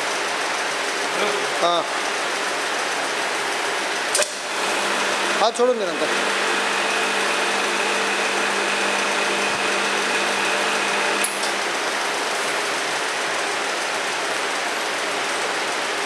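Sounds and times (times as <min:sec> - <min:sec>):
machine hum with whine: 0:04.0 - 0:14.3.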